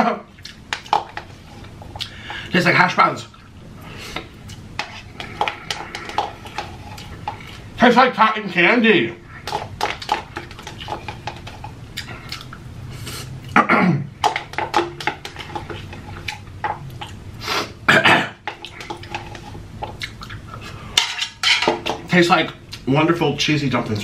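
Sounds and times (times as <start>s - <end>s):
person chewing and slurping: 0.4s - 2.4s, 3.4s - 7.7s, 9.3s - 13.6s, 14.3s - 17.8s, 18.4s - 21.0s.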